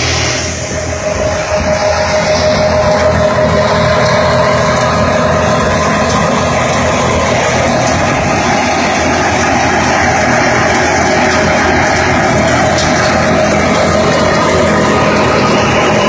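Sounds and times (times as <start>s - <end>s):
grain thresher droning: 0.0s - 16.0s.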